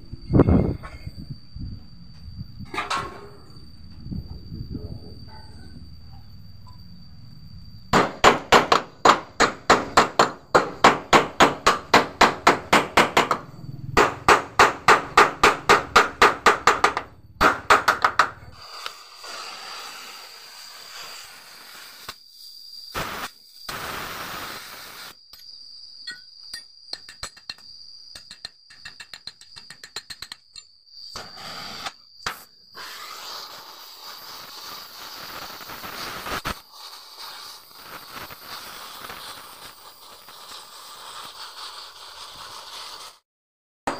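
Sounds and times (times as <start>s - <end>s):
welding crackling hiss: 17.4s - 25.4s, 31.1s - 43.2s.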